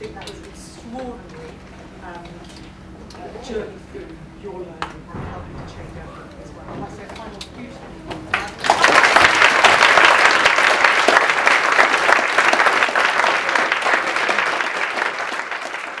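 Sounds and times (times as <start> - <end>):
audience applauding: 8.3 - 16.0.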